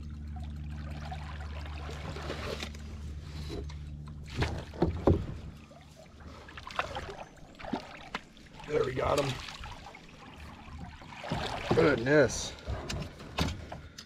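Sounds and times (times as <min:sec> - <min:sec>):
water splashing: 0:00.0 - 0:03.0, 0:04.2 - 0:12.7
knocks against boat: 0:04.3 - 0:05.5.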